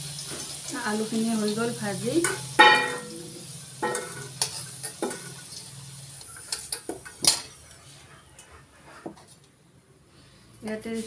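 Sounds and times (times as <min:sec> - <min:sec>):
oil sizzling: 0:00.0 - 0:07.8
metal spatula scraping pan: 0:03.8 - 0:05.6.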